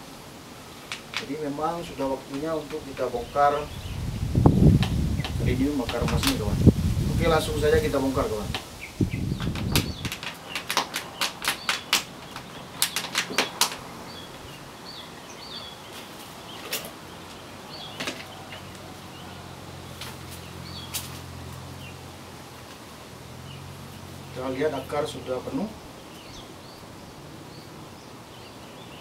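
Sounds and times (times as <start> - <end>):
plastic bottle crinkling: 9.4 - 13.9.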